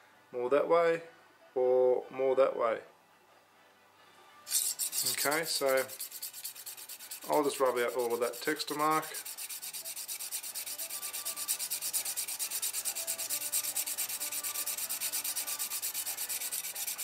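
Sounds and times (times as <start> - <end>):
hone rasping on knife edge: 4.5 - 17.0.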